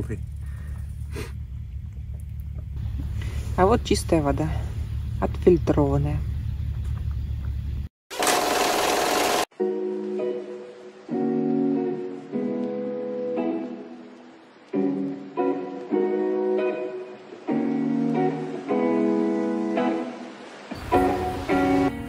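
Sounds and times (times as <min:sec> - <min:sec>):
guitar chords ringing: 0:09.6 - 0:22.0.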